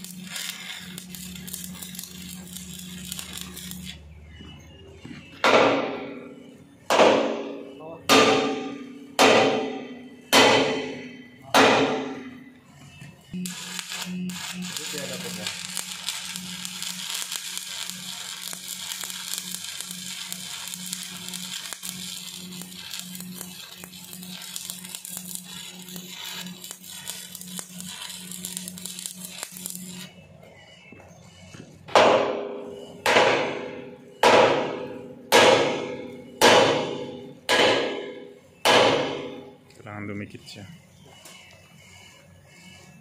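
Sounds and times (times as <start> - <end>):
arc welding crackling hiss: 0.0 - 4.1, 13.3 - 30.2, 33.4 - 43.0
hammer ringing on steel: 6.9 - 12.4.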